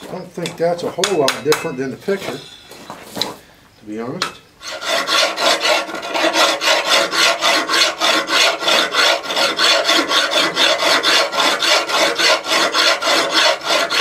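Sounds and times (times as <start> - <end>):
rasp scraping steel blade: 4.6 - 14.0.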